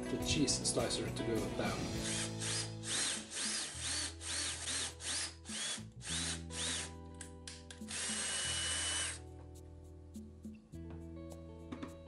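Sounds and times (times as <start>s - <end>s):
cordless drill whining into wood: 2.0s - 6.9s, 7.9s - 9.2s.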